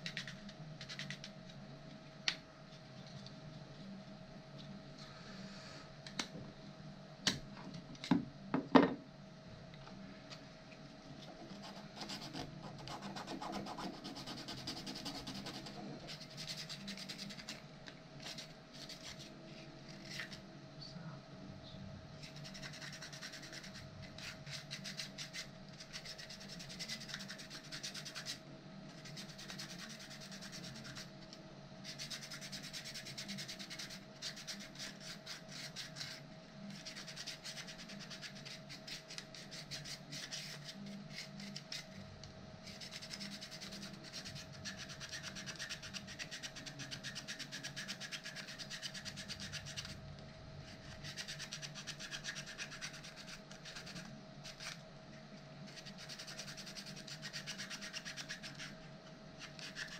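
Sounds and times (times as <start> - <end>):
hand sanding plastic part: 22.2 - 31.1, 42.6 - 50.0, 50.7 - 54.8, 55.7 - 58.8, 59.4 - 59.9.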